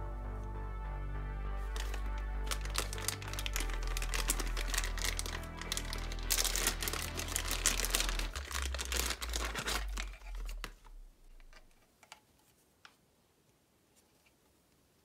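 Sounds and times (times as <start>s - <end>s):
plastic bag crinkling: 1.6s - 11.8s.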